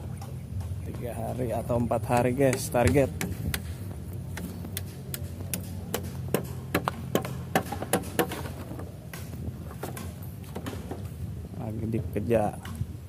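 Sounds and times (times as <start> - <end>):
steady low hum: 0.0 - 13.0
sharp rhythmic knocks: 2.0 - 3.8, 4.4 - 9.2.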